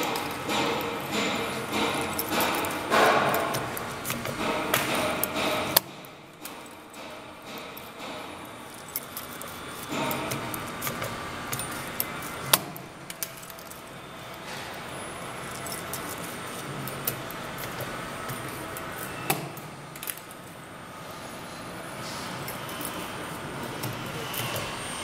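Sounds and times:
metallic clicks and clacks: 0.0 - 14.8
machine whirring: 0.0 - 25.0.

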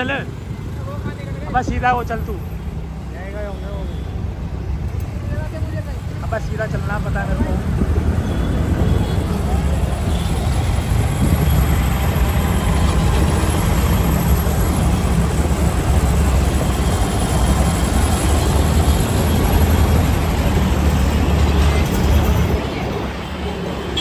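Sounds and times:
road traffic rumble: 0.0 - 24.0
bus engine running: 7.3 - 24.0.

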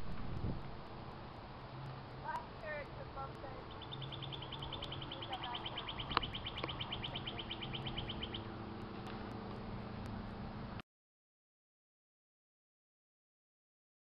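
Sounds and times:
bird trilling: 2.2 - 9.0.

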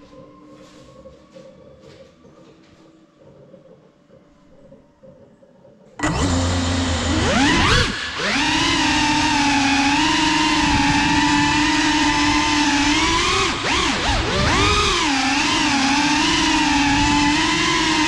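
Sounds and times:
drone motors whining: 6.0 - 18.0.

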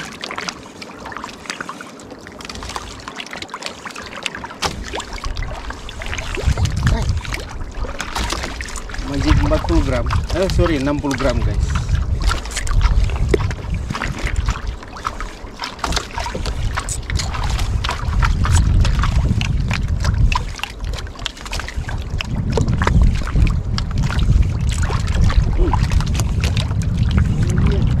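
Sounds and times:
water slapping against boat hull: 0.0 - 28.0
short sharp splashes: 2.6 - 19.5
wind rumbling on microphone: 4.6 - 28.0.

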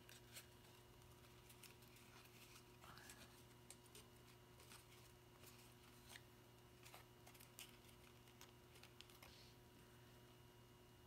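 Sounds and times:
paper ticks and crinkles: 0.0 - 6.2, 6.8 - 9.3.

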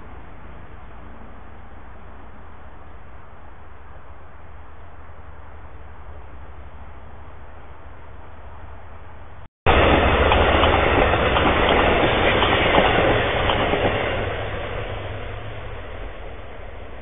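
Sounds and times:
train wheels clacking over rails: 9.7 - 15.8.

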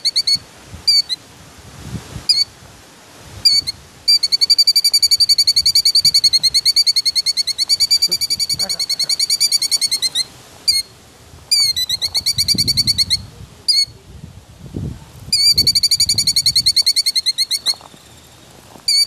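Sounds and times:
bird trilling alarm call: 0.0 - 1.2, 2.3 - 2.5, 3.4 - 10.9, 11.5 - 14.0, 15.3 - 18.1.

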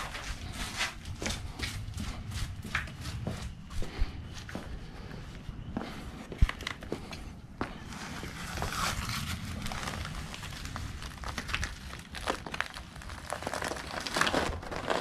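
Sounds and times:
newspaper rustling and crinkling: 7.8 - 15.0.

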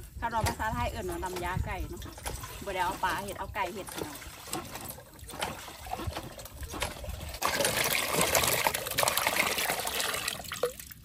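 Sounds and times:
water pouring into a pot: 7.3 - 11.0.

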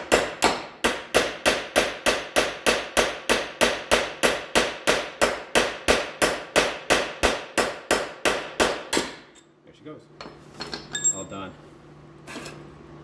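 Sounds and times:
hammer striking metal punch: 0.0 - 9.3.

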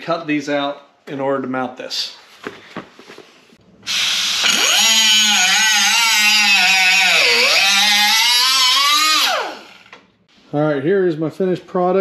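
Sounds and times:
angle grinder cutting metal: 3.9 - 9.9.

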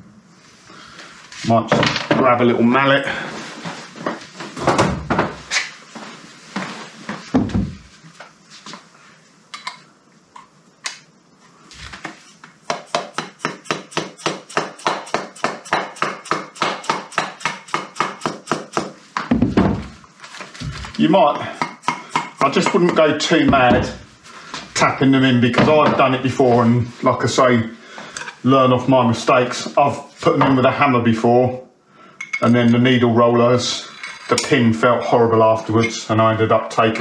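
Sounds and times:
handling knocks and thumps: 4.0 - 5.5, 7.1 - 7.9, 19.2 - 21.0, 22.6 - 24.0.

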